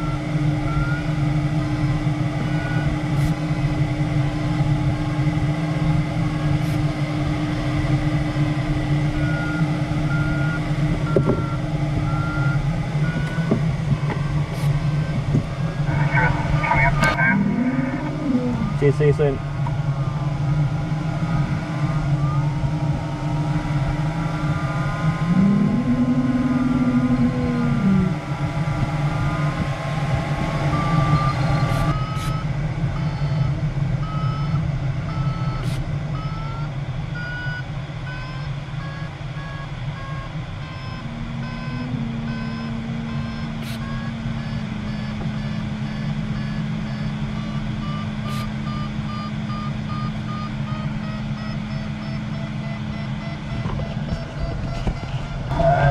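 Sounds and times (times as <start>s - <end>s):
variometer beeps rising in pitch: 0.0s - 1.2s, 9.2s - 13.6s, 14.2s - 19.4s, 21.2s - 22.6s, 30.3s - 55.9s
variometer wavering tone: 0.0s - 55.9s.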